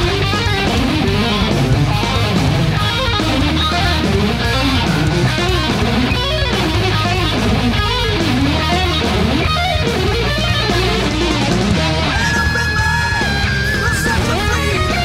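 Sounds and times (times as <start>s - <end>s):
electric guitar shred solo: 0.0s - 15.0s
sustained bass notes: 0.0s - 15.0s.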